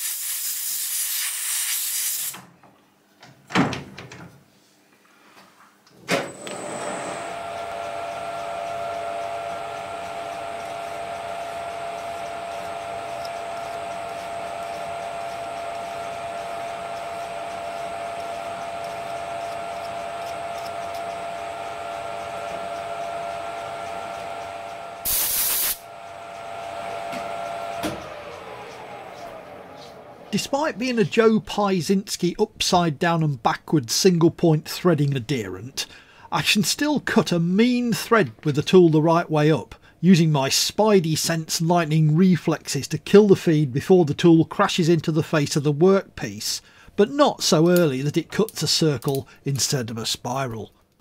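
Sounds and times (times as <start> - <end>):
compressed air blast hissing: 0.0 - 2.4, 25.0 - 25.8
lathe running with gear whine: 6.4 - 25.1, 25.8 - 31.6
click: 13.2 - 13.4, 48.5 - 49.3.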